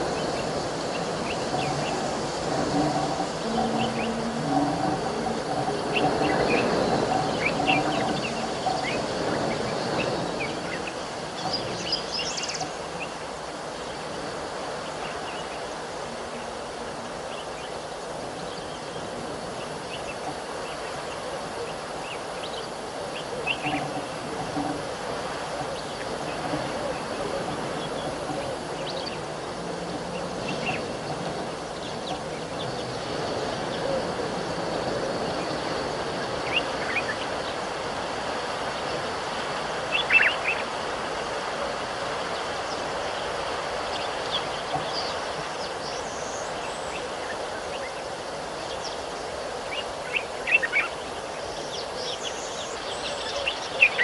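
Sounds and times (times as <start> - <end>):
low hum: 0.0 - 10.6
birds chirping: 0.0 - 54.0
steady rushing background noise: 0.0 - 54.0
faint high tone: 3.4 - 6.0.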